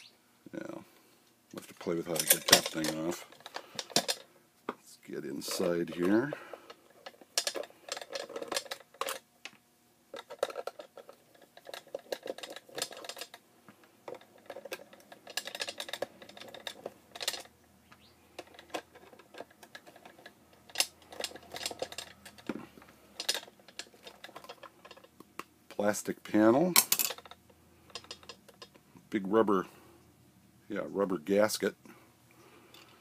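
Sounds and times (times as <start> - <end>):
screwdriver clicking and rattling: 2.0 - 4.2, 7.0 - 9.2, 10.1 - 13.4, 14.0 - 17.5, 18.4 - 25.4, 26.8 - 28.8.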